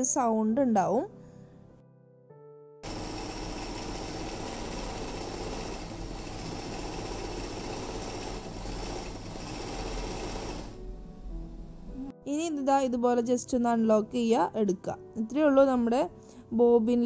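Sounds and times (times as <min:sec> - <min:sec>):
sewing machine motor whirring: 0:02.8 - 0:10.8.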